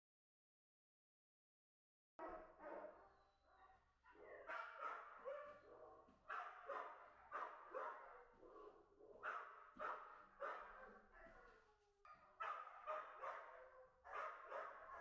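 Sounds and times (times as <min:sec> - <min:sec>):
dog barking: 0:02.2 - 0:03.1, 0:04.1 - 0:15.0.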